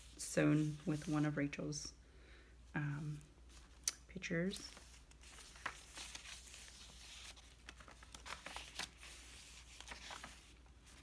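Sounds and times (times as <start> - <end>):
paper pages rustling: 4.5 - 11.0.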